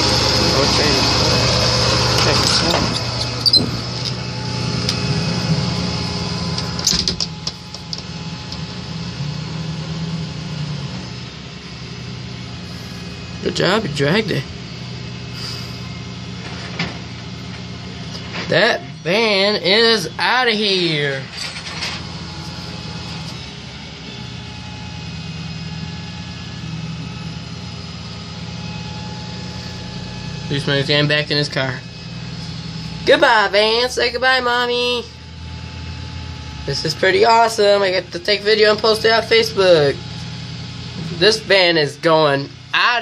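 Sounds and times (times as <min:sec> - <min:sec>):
diesel engine idling: 0:00.0 - 0:43.0
tow truck running: 0:00.0 - 0:43.0
winch dragging a van: 0:00.0 - 0:43.0.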